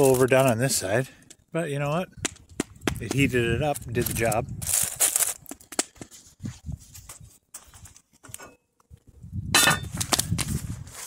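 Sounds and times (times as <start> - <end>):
cookware clattering and ringing: 9.6 - 9.9
cookware knocks and metal clinks: 9.6 - 9.9.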